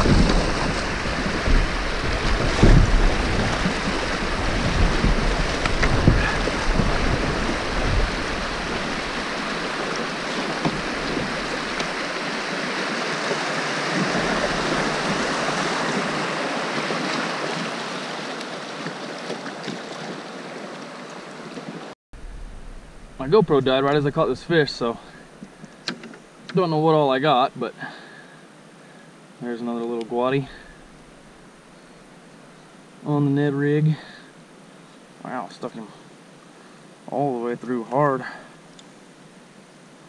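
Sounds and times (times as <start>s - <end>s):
paddle knocking kayak hull: 0.0s - 12.3s
river rapids rushing: 0.0s - 21.9s.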